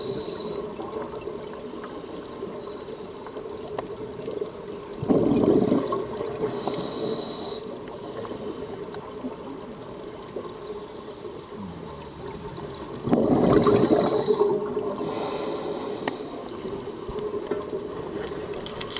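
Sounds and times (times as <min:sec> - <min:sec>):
regulator inhale hiss: 0:00.0 - 0:00.8, 0:06.4 - 0:08.8, 0:13.6 - 0:17.2
bubbling underwater exhalation: 0:05.0 - 0:06.4, 0:11.4 - 0:15.1.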